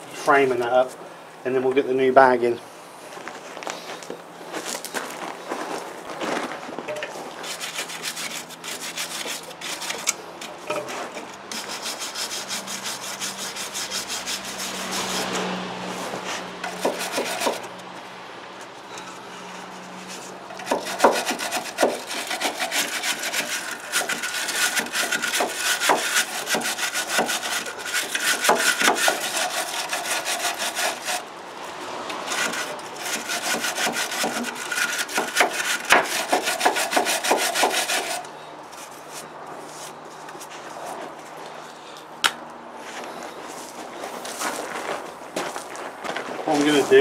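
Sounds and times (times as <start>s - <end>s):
wire brush scrubbing steel: 6.9s - 17.9s, 18.8s - 31.3s, 32.0s - 40.6s.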